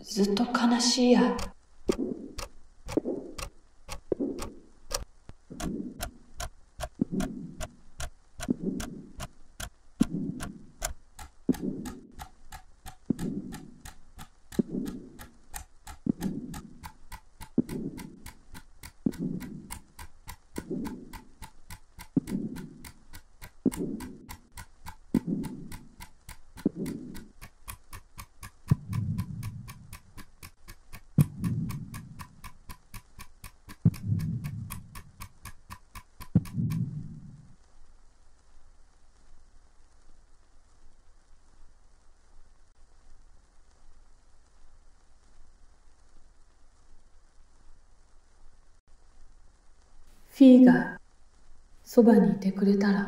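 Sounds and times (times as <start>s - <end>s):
clock-like ticking: 0.3s - 37.0s
soft footsteps: 1.3s - 37.0s.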